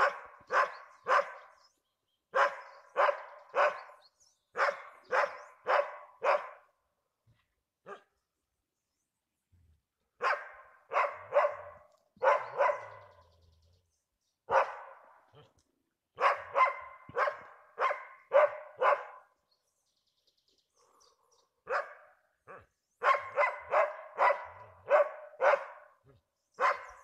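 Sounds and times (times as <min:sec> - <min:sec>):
dogs barking: 0:00.0 - 0:01.6, 0:02.3 - 0:06.7, 0:07.8 - 0:08.1, 0:10.2 - 0:13.2, 0:14.5 - 0:15.5, 0:16.2 - 0:19.3, 0:21.6 - 0:27.0.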